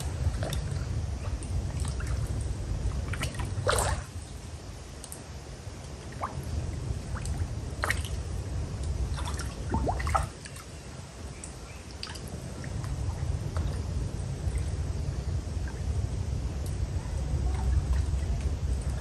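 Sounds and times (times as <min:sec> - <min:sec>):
water drips on pond surface: 0:00.0 - 0:16.8, 0:17.4 - 0:19.0
low rumble: 0:11.2 - 0:19.0.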